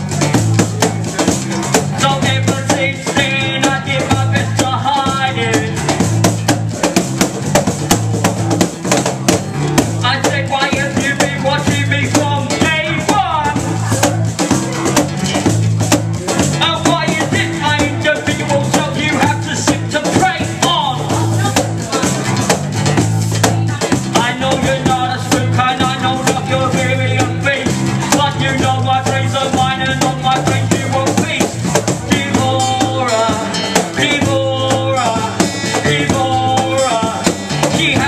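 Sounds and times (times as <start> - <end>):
bass guitar: 0.0 - 38.0
drum hits: 0.0 - 38.0
strummed acoustic guitar: 0.0 - 38.0
person rapping: 2.0 - 5.8, 10.0 - 14.3, 16.6 - 22.5, 23.5 - 38.0.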